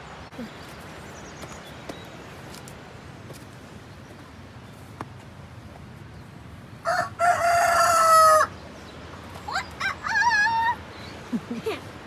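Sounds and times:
rooster crowing: 0:06.8 - 0:08.5.

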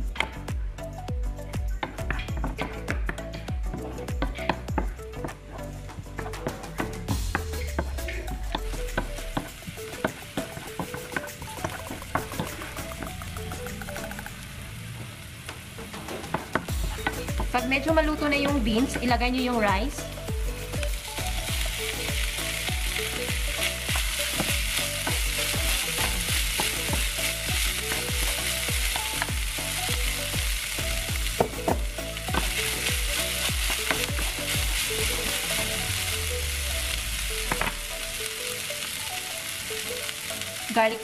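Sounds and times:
food sizzling in oil: 0:07.1 - 0:41.0
spatula tapping pan: 0:31.2 - 0:35.5.

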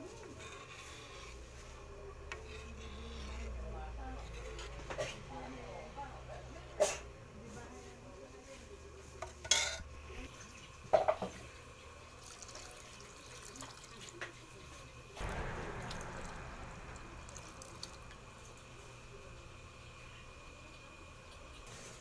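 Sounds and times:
water pouring into a pan: 0:12.2 - 0:14.2, 0:17.2 - 0:18.9
sharp knocks: 0:15.2 - 0:18.8.

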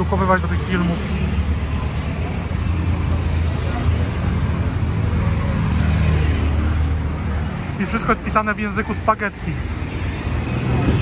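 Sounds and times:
car passing: 0:00.0 - 0:08.4
motorcycles passing: 0:00.0 - 0:11.0
steady engine rumble: 0:00.0 - 0:11.0.

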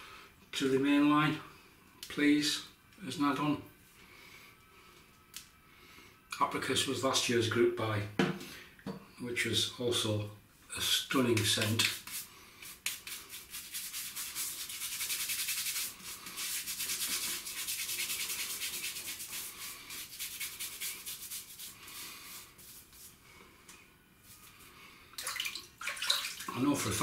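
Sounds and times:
crackly lather scrubbing hiss: 0:11.6 - 0:23.2.

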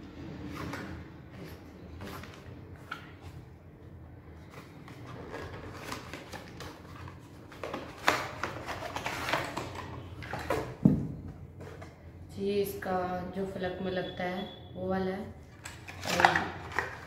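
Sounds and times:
cardboard and plastic rustling: 0:04.3 - 0:12.0, 0:15.5 - 0:17.0.

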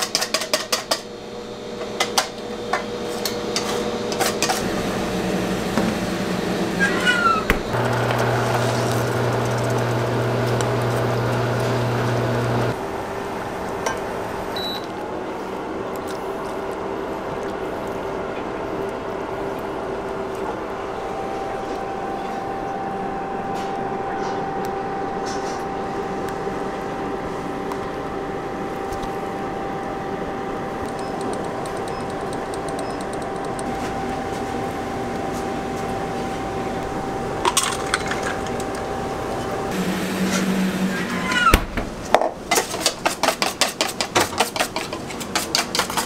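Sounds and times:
kitchen appliance hum: 0:00.0 - 0:46.0
deeper hum: 0:02.6 - 0:14.6.

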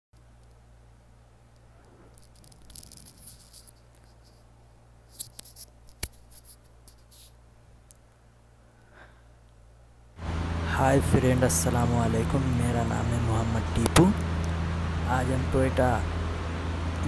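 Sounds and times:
low steady hum: 0:00.2 - 0:17.0
faint rustles and clicks: 0:01.4 - 0:09.6.

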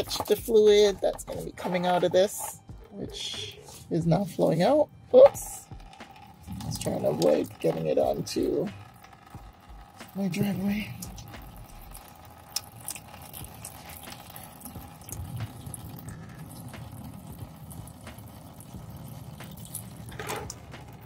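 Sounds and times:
liquid trickling into container: 0:05.2 - 0:21.0.

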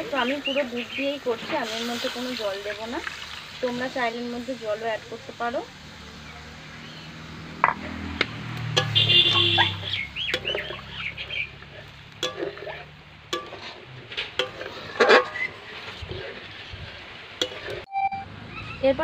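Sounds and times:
bird calling: 0:00.2 - 0:01.2, 0:08.9 - 0:11.8
spatula scraping metal pan: 0:07.6 - 0:17.9.

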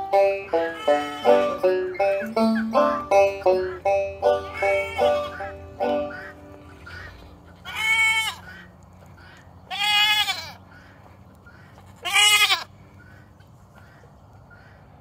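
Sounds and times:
goat bleating: 0:00.3 - 0:03.1, 0:04.2 - 0:08.6, 0:09.7 - 0:10.6, 0:12.0 - 0:12.7.

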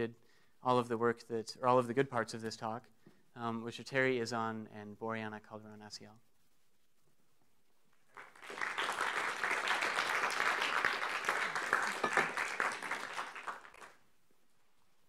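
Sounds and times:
audience applauding: 0:08.1 - 0:14.0.

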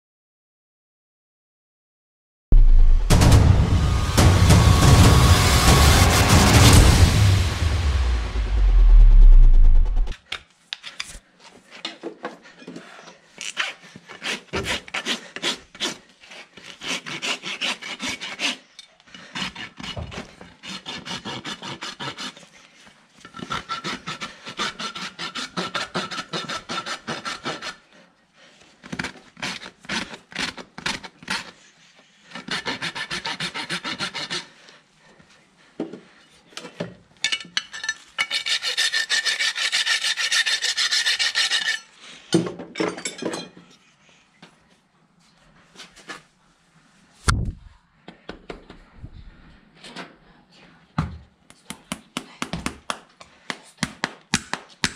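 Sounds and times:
rasp filing hoof: 0:11.1 - 0:27.9, 0:28.8 - 0:34.7, 0:38.2 - 0:42.0.

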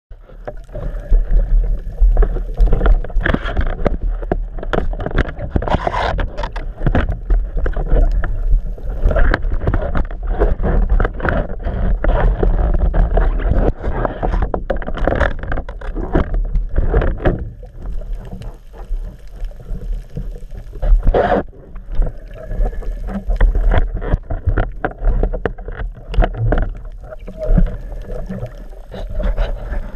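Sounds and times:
underwater rumble of moving water: 0:00.1 - 0:29.9.

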